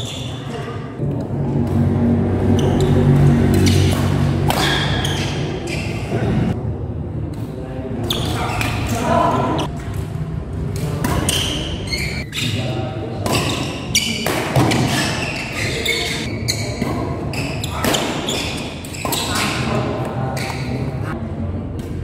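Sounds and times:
rackets hitting shuttlecock: 0:02.6 - 0:05.9, 0:09.7 - 0:11.8, 0:13.2 - 0:15.2.

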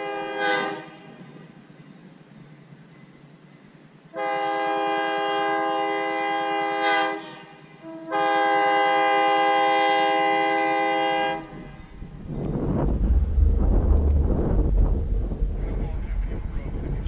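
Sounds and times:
locomotive air horn blasts: 0:00.0 - 0:01.2, 0:04.1 - 0:12.1.

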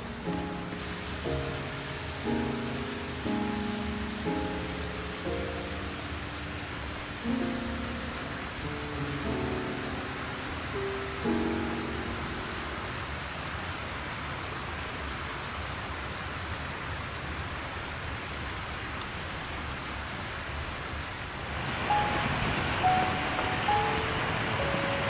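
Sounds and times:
background music: 0:00.0 - 0:13.0, 0:21.9 - 0:25.0
river rushing: 0:00.0 - 0:25.0.

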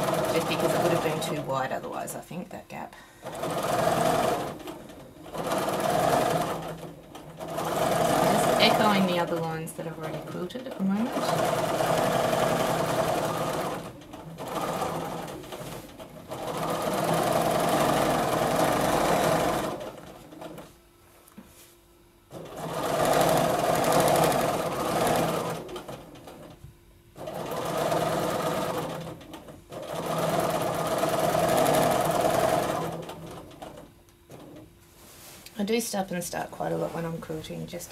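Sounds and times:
sewing machine stitching: 0:00.0 - 0:02.1, 0:03.2 - 0:20.7, 0:22.3 - 0:26.6, 0:27.2 - 0:34.7.

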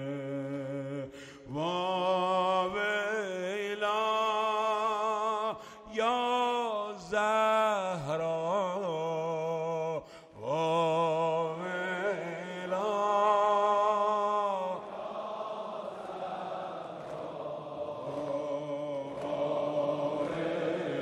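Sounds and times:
man singing a mourning lament: 0:00.0 - 0:15.0.

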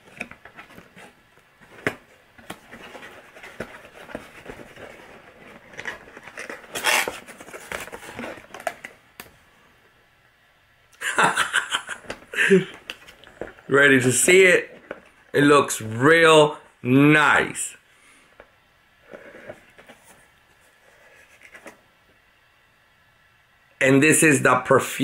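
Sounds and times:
paperboard box rustling: 0:00.0 - 0:08.9.

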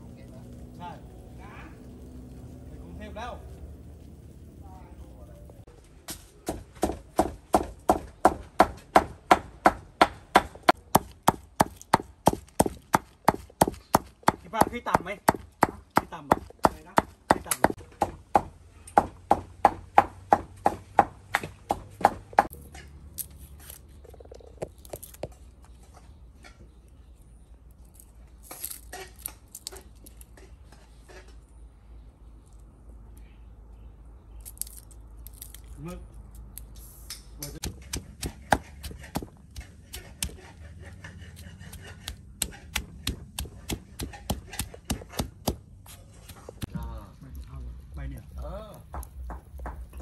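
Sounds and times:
stone pestle pounding in mortar: 0:06.4 - 0:22.5, 0:37.6 - 0:40.6, 0:41.2 - 0:46.8, 0:48.8 - 0:50.0.

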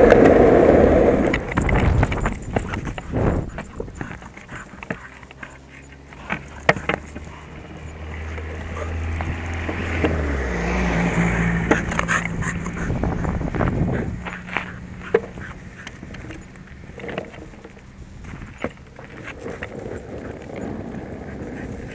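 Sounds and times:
longboard wheels rolling on road: 0:00.0 - 0:21.9
sharp clicks and knocks: 0:01.2 - 0:10.2.

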